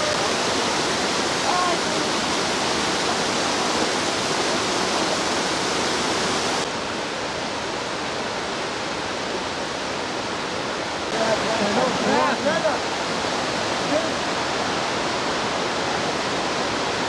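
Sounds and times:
waterfall pouring into pool: 0.0 - 6.7.

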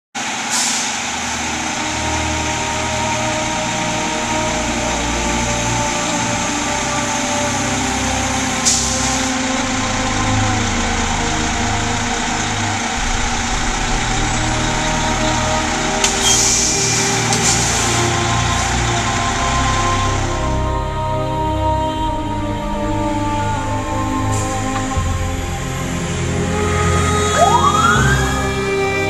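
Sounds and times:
diesel engines idling: 0.2 - 29.0
air brake hiss: 0.4 - 1.1, 16.0 - 18.0.

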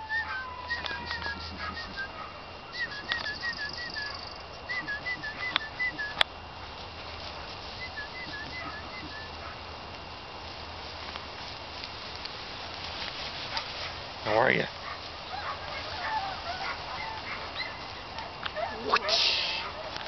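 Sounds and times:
songbird singing: 0.0 - 6.4, 7.6 - 10.2, 15.0 - 20.0.

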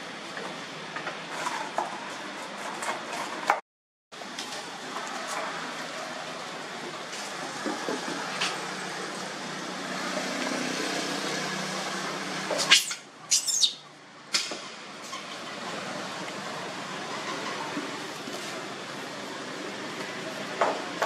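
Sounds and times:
steady background noise: 4.2 - 21.0
young monkey screaming: 12.7 - 13.8.

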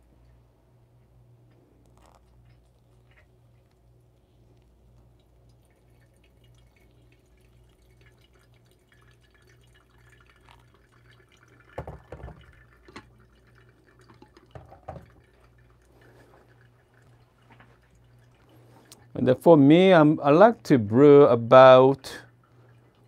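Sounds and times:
hot water pouring and trickling: 1.8 - 23.0
kettle knocking on a table: 11.8 - 12.5, 14.6 - 15.1.

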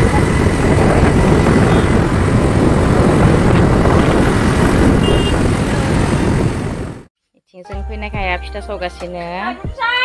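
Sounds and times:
motorcycle road noise: 0.0 - 7.1
wind buffeting microphone: 0.0 - 7.1.

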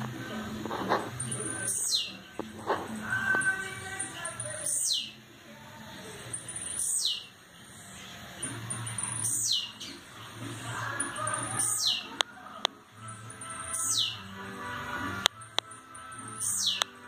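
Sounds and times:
bird singing sharp falling notes: 1.1 - 2.3, 3.1 - 5.2, 6.3 - 7.3, 8.4 - 10.0, 11.1 - 12.2, 13.0 - 14.3, 15.6 - 17.0
short high bird chips: 13.2 - 14.2, 16.0 - 17.0.

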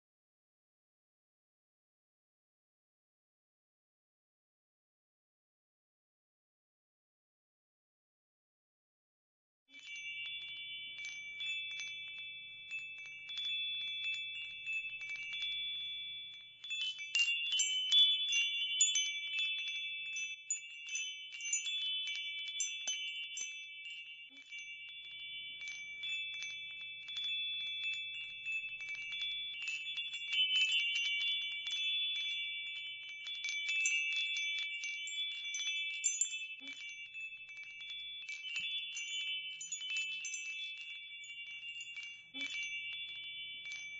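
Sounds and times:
chimes tinkling: 9.8 - 43.9.

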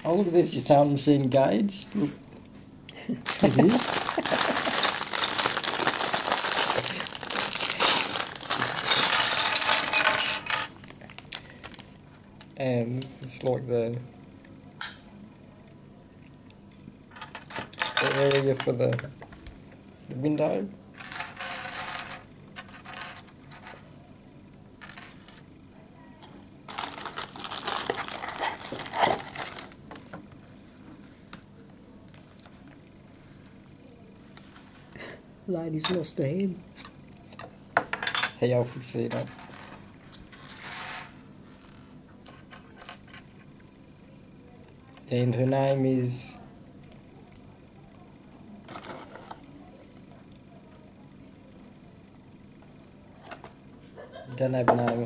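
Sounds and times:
plastic packaging and bricks rustling: 3.2 - 11.8, 26.7 - 30.1, 48.7 - 49.4
plastic bag crinkling: 3.2 - 11.9, 26.7 - 30.1.

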